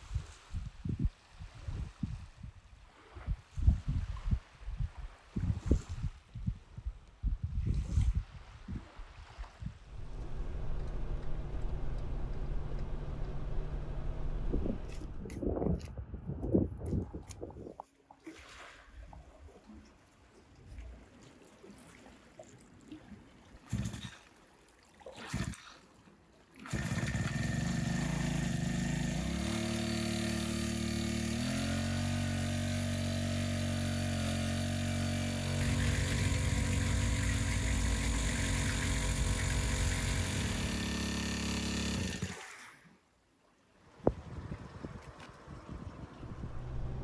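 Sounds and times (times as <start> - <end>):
petrol engine water pump running: 9.9 - 15.2, 23.7 - 24.1, 26.6 - 42.5.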